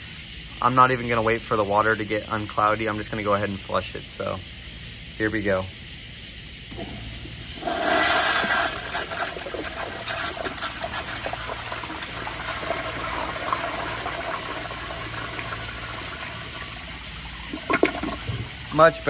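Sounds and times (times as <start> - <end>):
water swirling down bowl: 6.7 - 18.7
toilet flushing: 6.7 - 18.9.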